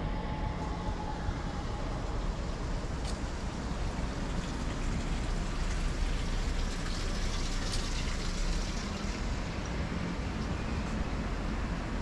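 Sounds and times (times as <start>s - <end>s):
distant traffic rumble: 0.0s - 12.0s.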